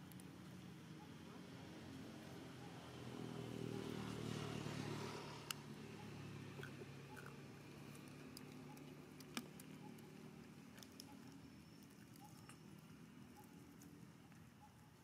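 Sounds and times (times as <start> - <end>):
soft ticks and clicks: 8.0 - 14.9.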